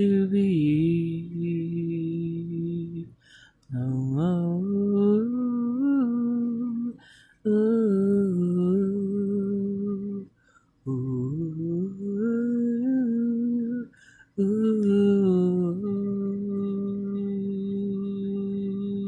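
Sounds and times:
person humming a melody: 0.0 - 19.0
person breathing: 3.1 - 3.7, 6.9 - 7.5, 10.3 - 10.8, 13.9 - 14.4.

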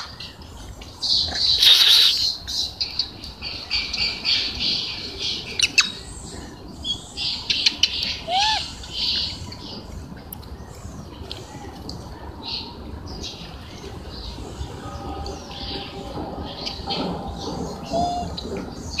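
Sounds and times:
harsh squawking animal calls: 1.6 - 2.3.

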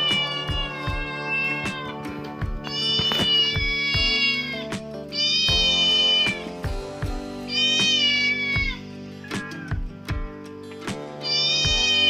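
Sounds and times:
cat meowing: 0.0 - 6.5, 7.5 - 9.9, 11.2 - 12.0
background music with drumbeat: 0.0 - 12.0.

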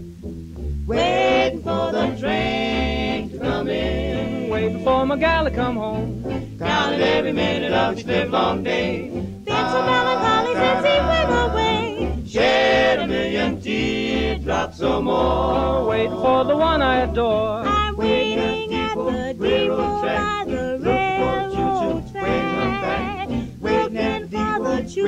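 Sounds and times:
bass accompaniment: 0.0 - 25.0
yodeling vocal: 0.9 - 6.0, 6.6 - 25.0.

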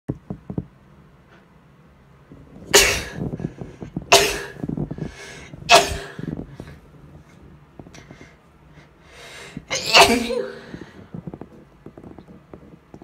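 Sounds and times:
woman sneezing: 9.7 - 10.7.

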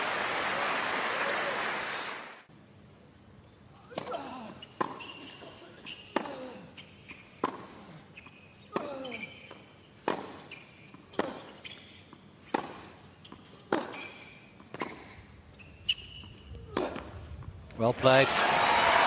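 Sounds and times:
tennis ball bouncing: 6.1 - 6.3, 7.4 - 7.7, 8.7 - 11.8, 12.5 - 15.2, 15.9 - 17.4
racket striking tennis ball: 10.0 - 10.4, 11.1 - 11.5, 12.5 - 12.9, 13.7 - 14.1, 16.7 - 17.2.

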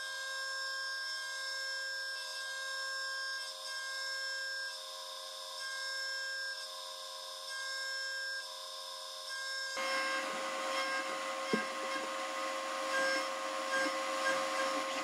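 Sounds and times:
milling machine whine: 9.8 - 15.0.

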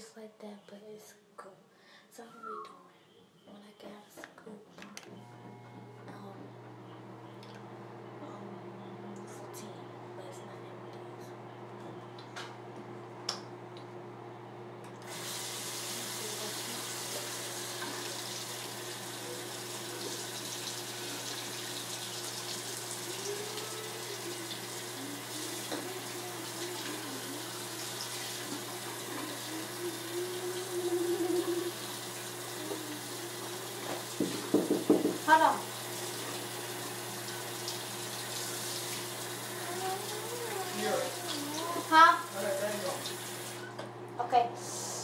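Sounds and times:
sink tap turned on: 15.0 - 30.8, 31.7 - 40.2
water running into basin: 15.0 - 43.6.

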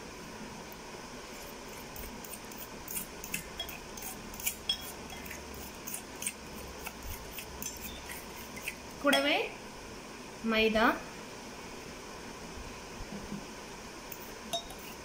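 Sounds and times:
fork clinking in glass bowl: 2.9 - 6.3, 7.6 - 9.3, 14.5 - 15.0.

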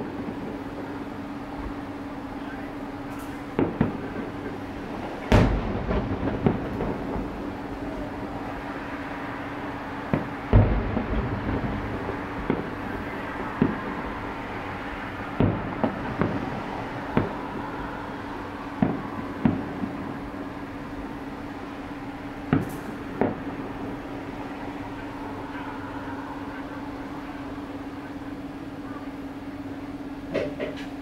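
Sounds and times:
steady low hum: 0.0 - 31.0
distant firework booms: 3.5 - 4.6, 5.3 - 8.2, 10.0 - 14.3, 15.3 - 17.7, 18.7 - 20.4.

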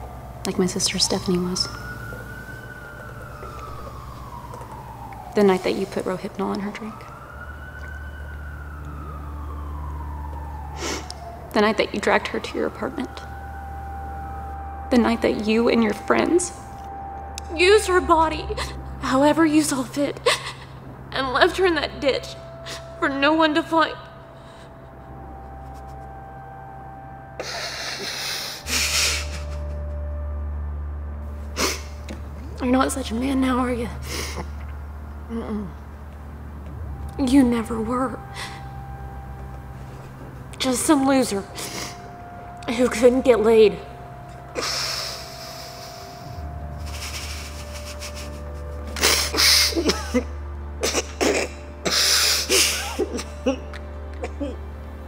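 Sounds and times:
low steady drone: 0.0 - 55.0
person sobbing: 20.2 - 20.8, 27.4 - 30.0, 44.6 - 54.6
man breathing hard through nose: 27.4 - 29.7, 44.6 - 49.8, 51.8 - 52.9.

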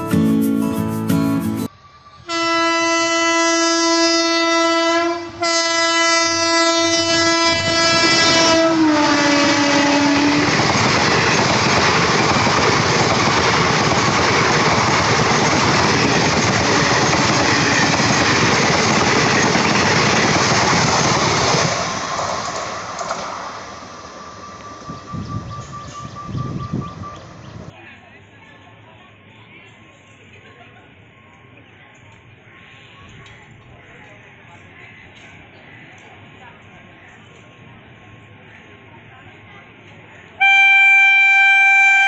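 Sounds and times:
train rumbling over rails: 1.6 - 27.8
locomotive air horn blasts: 2.2 - 10.5, 40.4 - 42.0.

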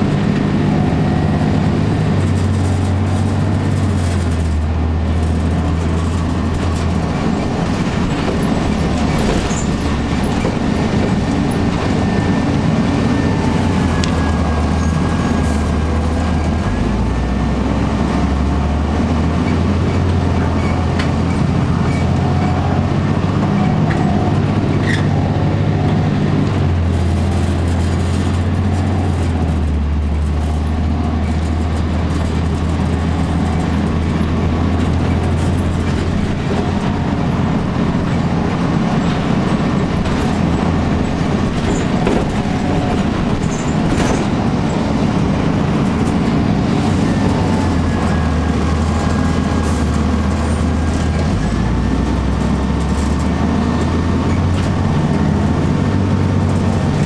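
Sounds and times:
diesel bus engine droning: 0.0 - 57.0
road rumble: 0.0 - 57.0.

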